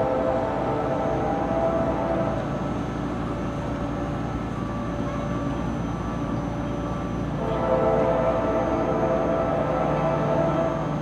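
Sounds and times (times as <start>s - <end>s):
locomotive air horn blast: 0.0s - 2.7s, 6.9s - 11.0s
train rumbling: 0.0s - 11.0s.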